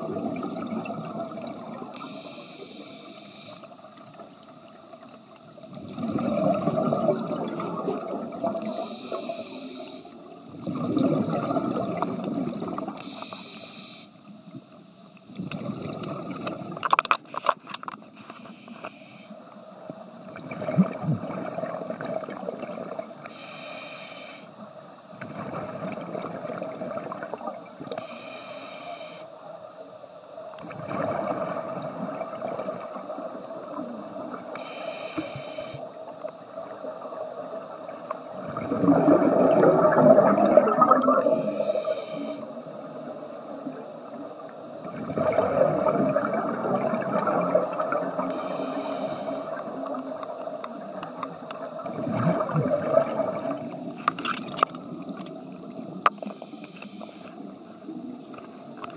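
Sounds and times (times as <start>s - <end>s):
bubbling exhale underwater: 0.0s - 2.0s, 5.7s - 8.9s, 10.4s - 13.0s, 15.4s - 16.8s, 20.3s - 23.1s, 30.6s - 34.5s, 36.6s - 42.0s, 44.8s - 50.2s, 50.8s - 53.9s
regulator inhale hiss: 1.9s - 3.9s, 8.6s - 10.4s, 13.0s - 14.4s, 18.1s - 19.5s, 23.2s - 25.0s, 27.8s - 29.5s, 33.7s - 36.2s, 41.2s - 43.8s, 48.2s - 51.7s, 56.1s - 57.8s.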